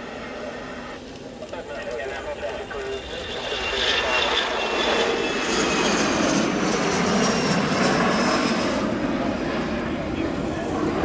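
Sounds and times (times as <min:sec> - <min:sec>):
jet engines roaring at takeoff: 0:00.0 - 0:11.0.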